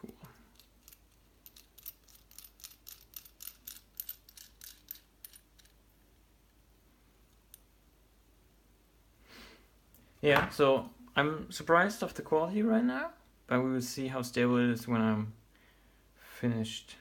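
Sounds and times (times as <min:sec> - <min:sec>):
faint light clicks of handled parts: 0:00.1 - 0:05.8.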